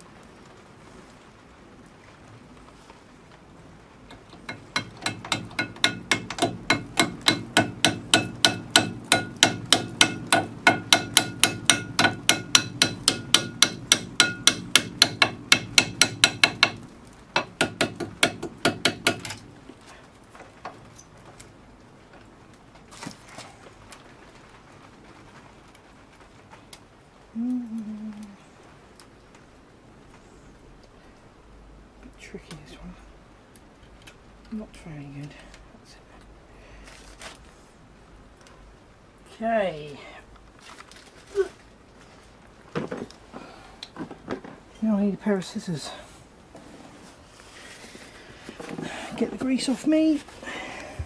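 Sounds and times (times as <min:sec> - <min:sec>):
hammer tapping on metal: 0:04.1 - 0:16.8, 0:17.4 - 0:19.4.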